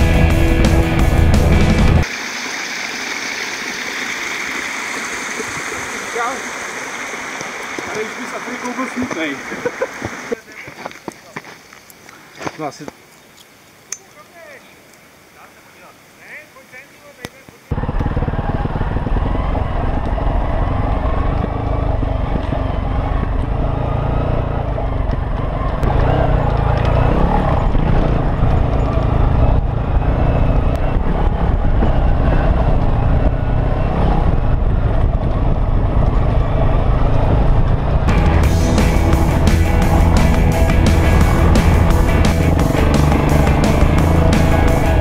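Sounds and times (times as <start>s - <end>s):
motorcycle engine droning: 17.7s - 45.0s.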